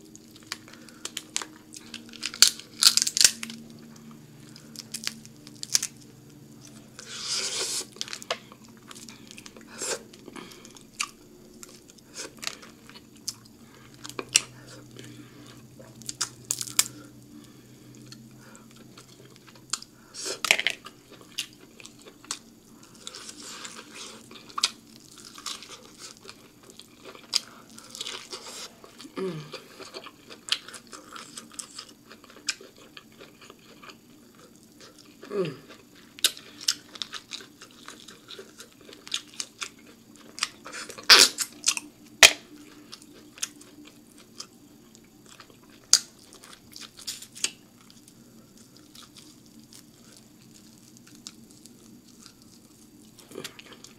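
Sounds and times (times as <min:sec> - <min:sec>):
chewing and crunching: 0:00.0 - 0:53.9
person humming: 0:29.1 - 0:29.7, 0:35.3 - 0:35.7.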